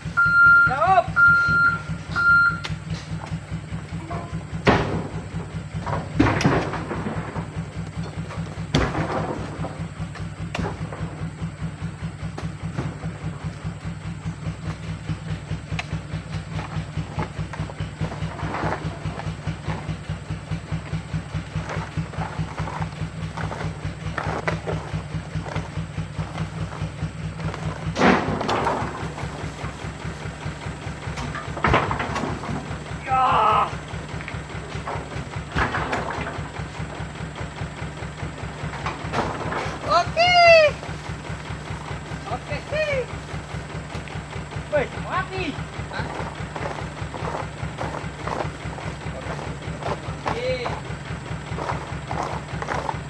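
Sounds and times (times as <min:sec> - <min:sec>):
truck engine idling: 0:00.0 - 0:53.0
fruit bunches thudding into steel bed: 0:04.3 - 0:13.6, 0:15.9 - 0:33.1, 0:33.7 - 0:36.9, 0:38.4 - 0:40.2.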